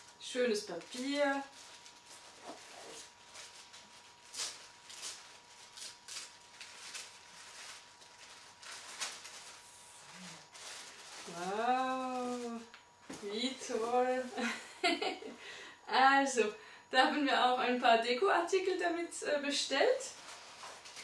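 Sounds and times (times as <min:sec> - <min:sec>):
tissue paper rustling: 0:00.0 - 0:14.6, 0:20.1 - 0:21.0.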